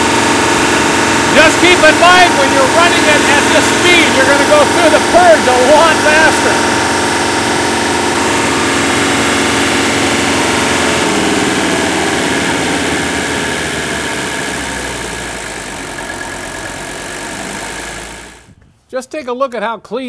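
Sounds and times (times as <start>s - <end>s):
diesel engine idling: 0.0s - 18.6s.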